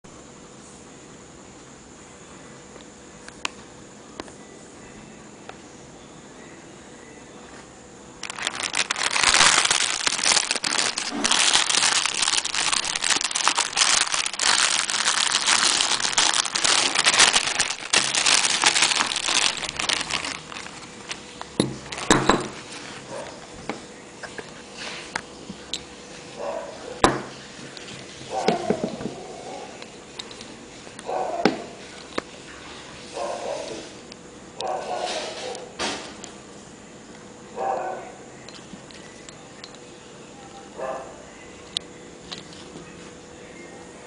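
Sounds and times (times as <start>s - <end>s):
plastic bag crinkling: 8.2s - 23.4s.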